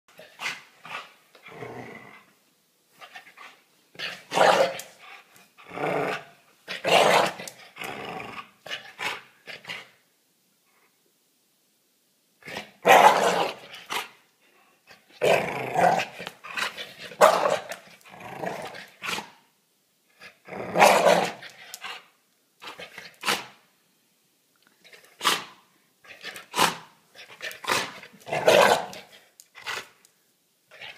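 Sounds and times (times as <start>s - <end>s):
dog growling and barking: 0.1s - 2.3s, 4.0s - 9.9s, 12.4s - 14.2s, 14.9s - 19.4s, 20.2s - 23.6s, 24.9s - 30.0s.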